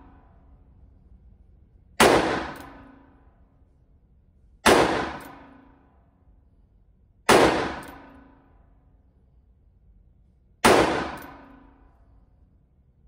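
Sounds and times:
revolver shots echoing indoors: 0:00.0 - 0:03.8, 0:04.5 - 0:06.6, 0:07.2 - 0:09.1, 0:10.5 - 0:12.5.

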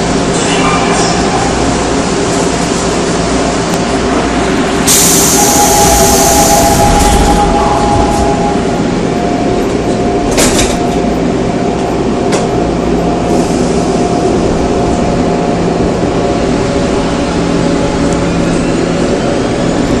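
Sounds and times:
electric train whine: 0:00.0 - 0:20.0
train wheels rumbling: 0:00.0 - 0:20.0.

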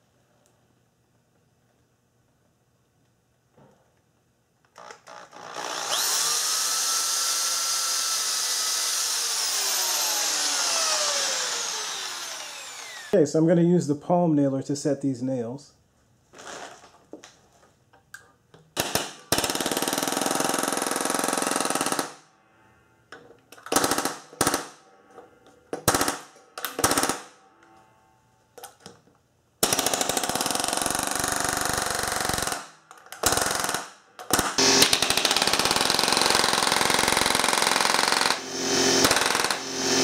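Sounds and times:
palm nailer hammering nails: 0:31.8 - 0:39.9.

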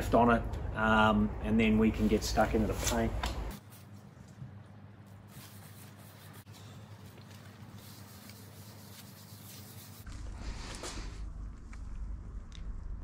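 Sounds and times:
cloth rubbing on surfboard: 0:05.2 - 0:11.2
low rumble: 0:10.0 - 0:13.0.

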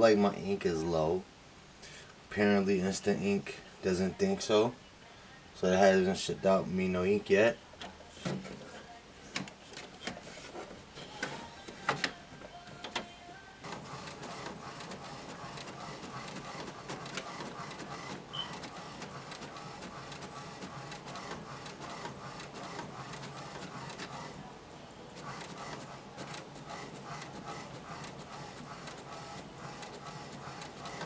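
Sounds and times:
printer clicks: 0:11.1 - 0:13.1, 0:13.7 - 0:24.4, 0:25.2 - 0:31.0
inkjet printer running: 0:13.6 - 0:31.0.

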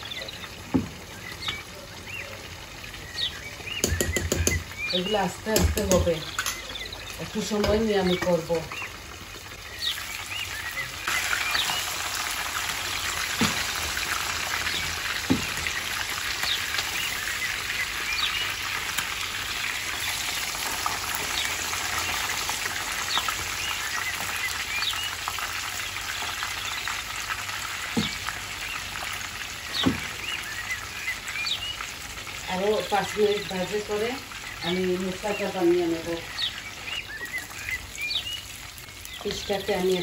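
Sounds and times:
fish sizzling in hot oil: 0:00.0 - 0:40.0
spatula knocking against pan: 0:03.8 - 0:04.7.

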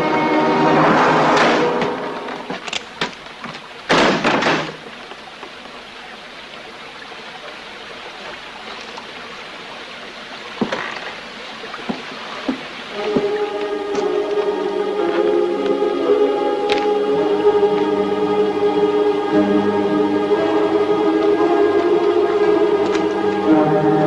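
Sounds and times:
low steady hiss: 0:00.0 - 0:24.0
loud noisy crash: 0:00.5 - 0:02.5.

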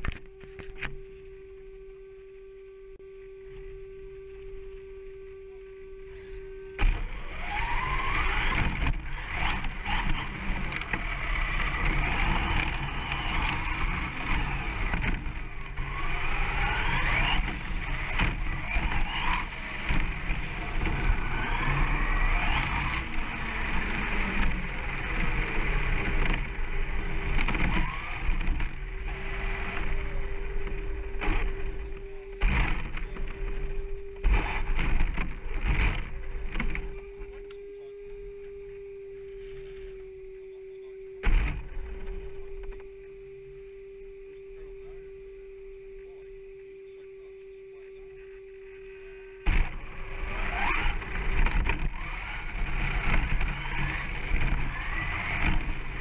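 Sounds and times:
electric motor whining: 0:00.0 - 0:56.0
steady tone: 0:00.0 - 0:56.0.

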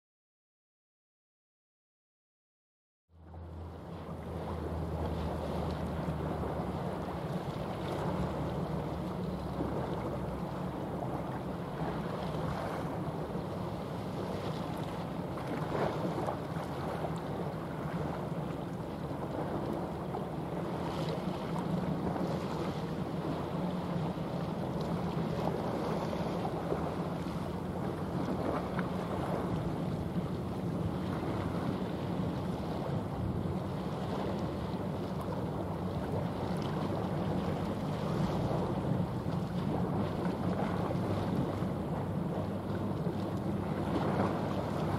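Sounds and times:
low steady drone: 0:03.1 - 0:44.9
sea waves washing: 0:03.2 - 0:44.9
wind on microphone: 0:03.6 - 0:44.9.

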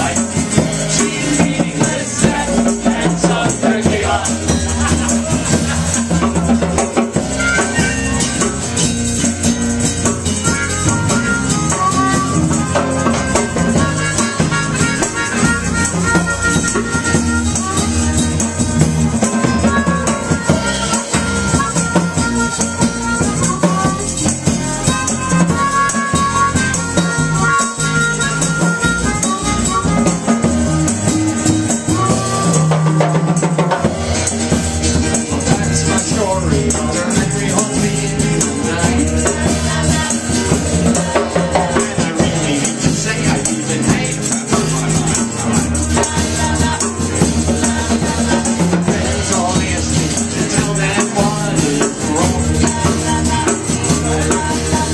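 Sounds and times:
harmonica melody: 0:07.0 - 0:09.1, 0:10.1 - 0:33.3.

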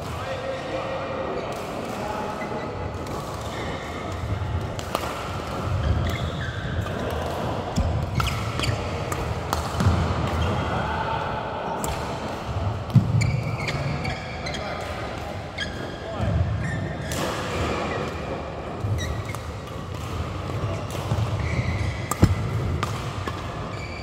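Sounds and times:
shoe squeaks: 0:05.8 - 0:06.7, 0:13.2 - 0:14.7, 0:16.6 - 0:17.1, 0:21.4 - 0:22.5, 0:23.3 - 0:24.0
racket striking shuttlecock: 0:22.0 - 0:24.0.

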